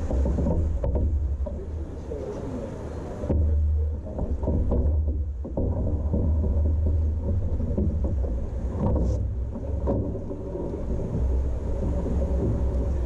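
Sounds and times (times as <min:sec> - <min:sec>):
knocks on wooden pontoon: 0:00.0 - 0:01.9, 0:03.2 - 0:13.0
wind rumbling on microphone: 0:00.0 - 0:13.0.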